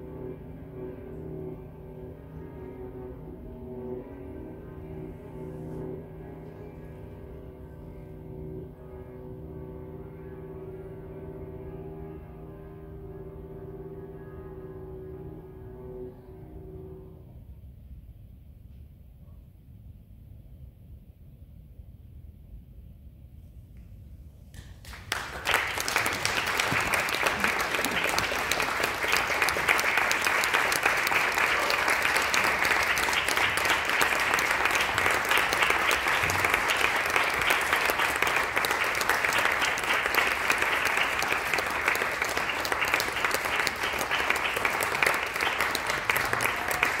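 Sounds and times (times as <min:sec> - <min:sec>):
audience applauding: 0:24.6 - 0:47.0.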